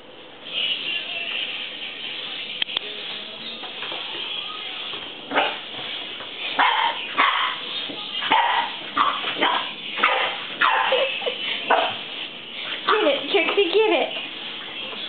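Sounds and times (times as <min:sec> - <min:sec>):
puppy barking: 0:05.3 - 0:05.7, 0:06.6 - 0:12.0.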